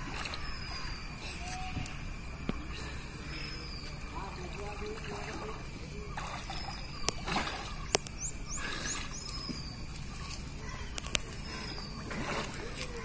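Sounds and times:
swimmer splashing water: 0:00.0 - 0:13.0.

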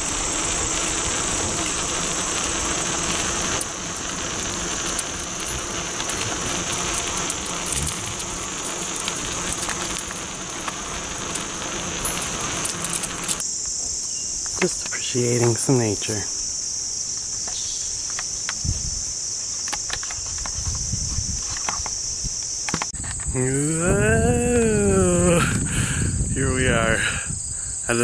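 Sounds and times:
tyres rolling on asphalt: 0:00.0 - 0:13.4
crickets chirping: 0:00.0 - 0:28.0
wind rushing over microphone: 0:18.5 - 0:19.2, 0:20.2 - 0:28.0.

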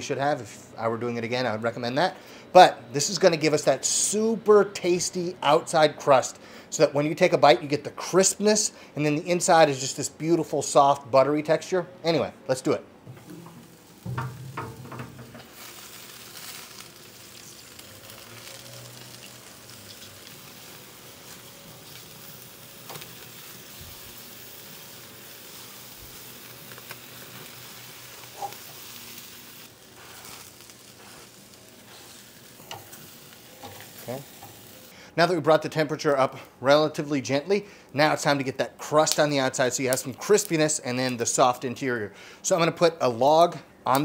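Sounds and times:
meat sizzling on a grill: 0:13.2 - 0:36.4, 0:38.1 - 0:41.6.

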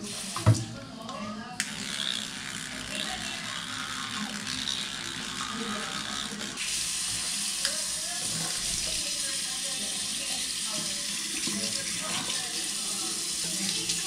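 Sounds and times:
tap water running into sink: 0:00.0 - 0:00.7, 0:06.6 - 0:14.0
toothbrush scrubbing teeth: 0:01.6 - 0:14.0.

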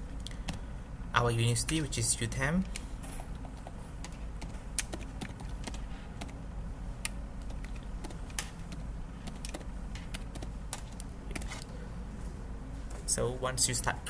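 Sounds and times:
steady low hum: 0:00.0 - 0:14.0
keyboard keys clicking: 0:03.4 - 0:06.4, 0:07.0 - 0:11.7.

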